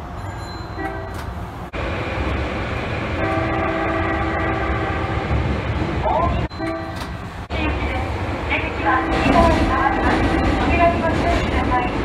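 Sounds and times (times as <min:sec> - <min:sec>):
train rumbling: 0:00.0 - 0:12.0
electric train horn: 0:00.8 - 0:01.2, 0:03.2 - 0:05.2, 0:06.5 - 0:07.0.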